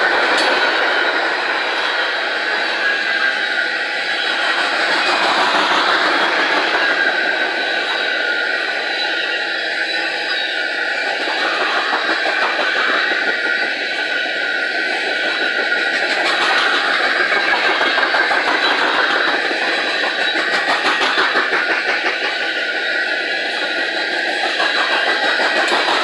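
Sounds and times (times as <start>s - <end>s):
train wheels rumbling on rail: 0.0s - 26.0s
wheel clicks over rail joints: 15.2s - 26.0s.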